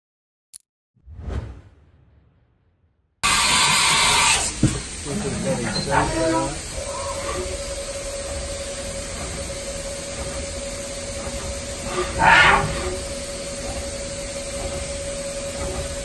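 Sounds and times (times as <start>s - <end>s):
loud burst of hiss: 3.2s - 8.0s.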